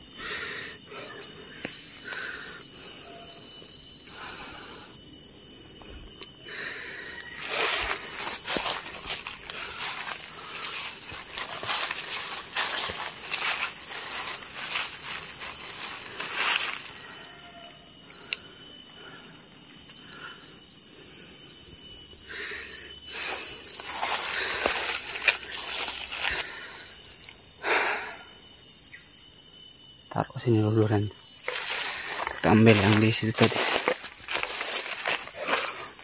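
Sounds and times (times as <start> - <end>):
high-pitched insect drone: 0.0 - 36.0
footsteps on dry leaves: 7.4 - 16.9, 23.2 - 26.5, 31.4 - 36.0.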